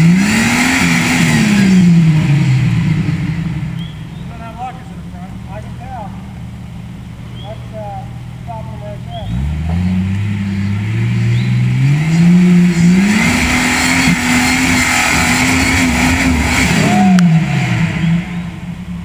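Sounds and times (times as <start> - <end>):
engine revving hard: 0.0 - 3.7, 9.2 - 18.7.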